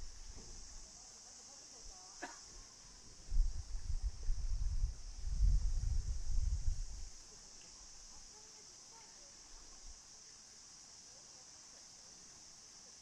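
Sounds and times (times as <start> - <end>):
insects droning: 0.0 - 13.0
low microphone rumble: 3.2 - 7.1.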